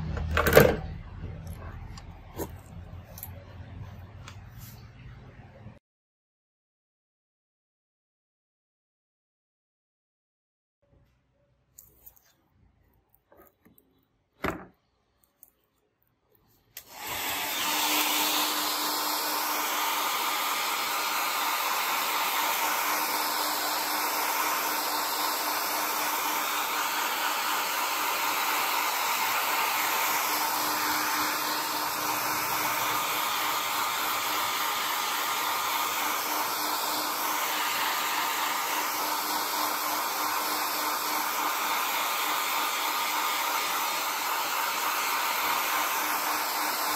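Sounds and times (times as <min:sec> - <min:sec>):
hair dryer blowing: 0:16.8 - 0:46.9.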